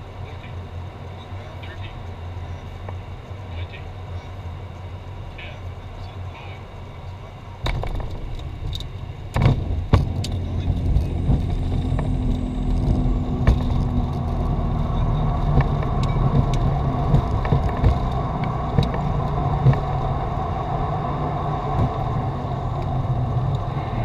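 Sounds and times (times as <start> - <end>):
jet rolling on runway rumble: 0.0 - 24.0
sharp knocks and rattles: 7.6 - 20.1.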